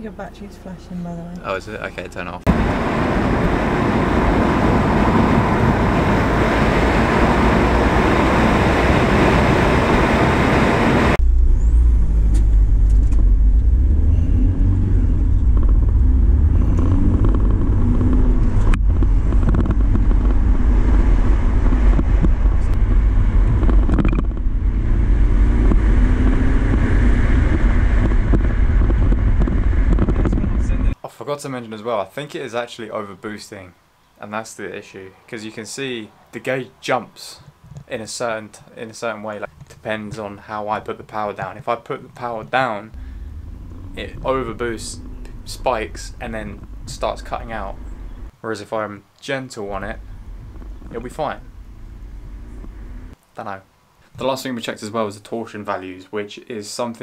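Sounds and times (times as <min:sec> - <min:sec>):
faint engine drone: 0:00.0 - 0:31.0, 0:42.9 - 0:48.4, 0:49.6 - 0:53.2
low engine and road rumble: 0:00.0 - 0:31.0, 0:42.3 - 0:48.4, 0:49.6 - 0:53.2
road and wind noise hiss: 0:01.0 - 0:11.2, 0:12.3 - 0:57.0.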